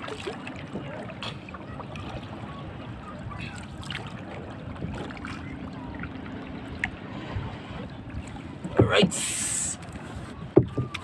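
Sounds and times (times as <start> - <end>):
water sloshing against boat hull: 0.0 - 11.0
sharp knock on boat: 10.5 - 11.0.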